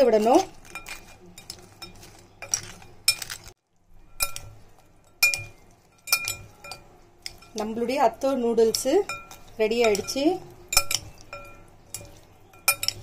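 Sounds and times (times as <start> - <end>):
utensils clinking against glass: 0.0 - 3.5, 4.1 - 8.0, 8.6 - 13.0
utensils tossing food in bowl: 0.0 - 13.0.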